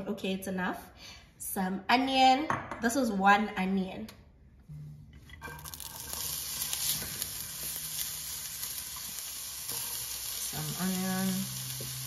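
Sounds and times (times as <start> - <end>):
onion sizzling in hot oil: 5.4 - 12.0.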